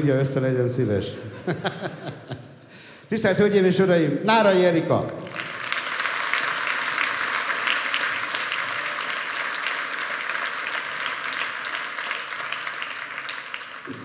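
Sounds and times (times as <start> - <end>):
audience applauding: 5.2 - 14.0.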